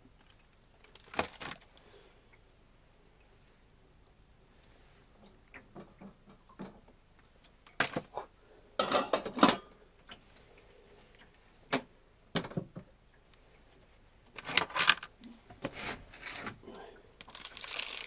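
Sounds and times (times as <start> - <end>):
kitchenware knocking and clinking: 8.8 - 9.7.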